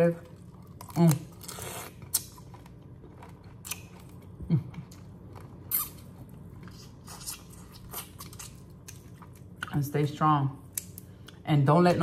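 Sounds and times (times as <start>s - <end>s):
chewing: 0.4s - 9.7s.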